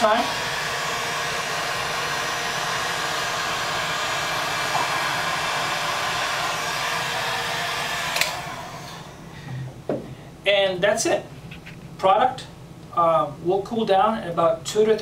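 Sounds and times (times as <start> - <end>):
heat gun blowing whir: 0.0 - 9.4
heat gun switch click: 8.1 - 8.4.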